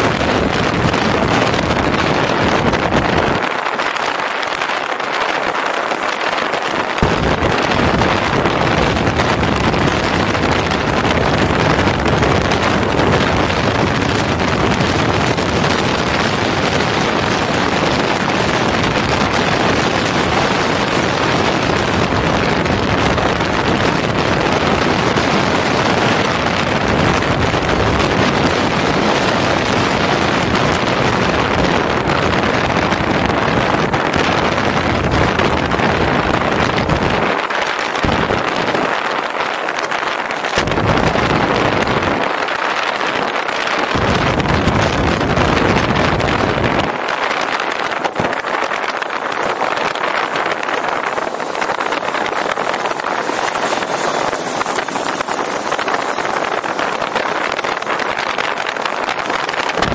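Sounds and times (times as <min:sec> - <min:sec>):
motorcycle road noise: 0:00.0 - 0:04.2, 0:06.7 - 0:59.9
wind rushing over microphone: 0:00.0 - 0:59.9
deep rumble: 0:07.0 - 0:17.3, 0:40.6 - 0:42.2, 0:44.0 - 0:46.9.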